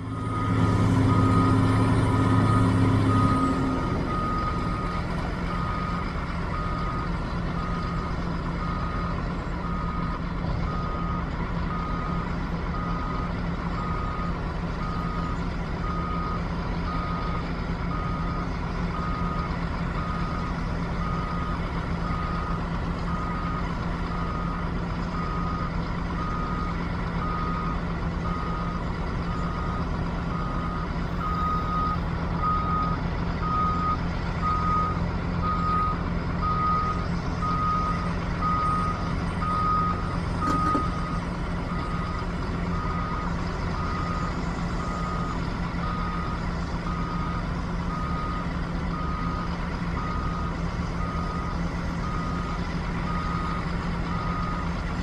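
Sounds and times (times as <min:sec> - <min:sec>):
diesel excavator engine running: 0:00.0 - 0:55.0
backup alarm beeping: 0:30.3 - 0:41.2.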